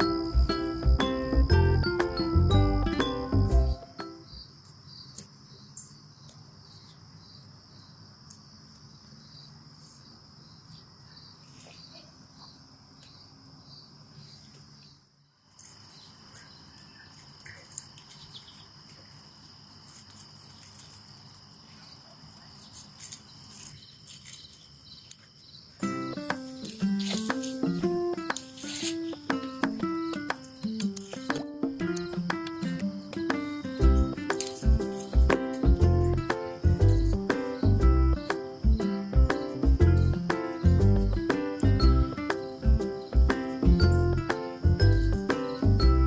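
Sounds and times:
crickets trilling: 0:00.0 - 0:46.0
rustling of vines being handled: 0:15.4 - 0:31.4, 0:33.6 - 0:35.8.

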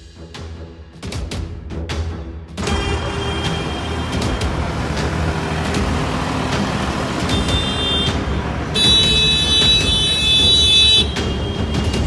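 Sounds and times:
tractor engines droning: 0:02.6 - 0:12.0.

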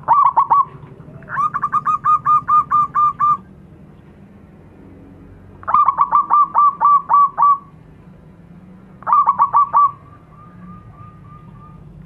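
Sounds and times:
dove cooing: 0:00.0 - 0:03.5, 0:05.6 - 0:07.7, 0:09.0 - 0:12.0.

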